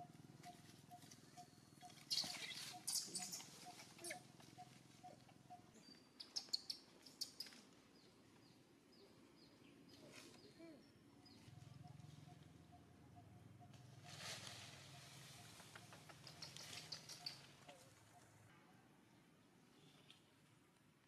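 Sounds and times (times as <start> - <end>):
small bird chirping: 0.0 - 8.1, 15.2 - 18.2
rustling: 14.0 - 18.0.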